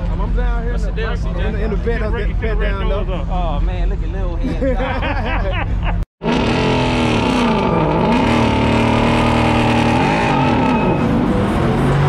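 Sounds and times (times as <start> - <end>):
car engine revving hard: 6.2 - 12.0.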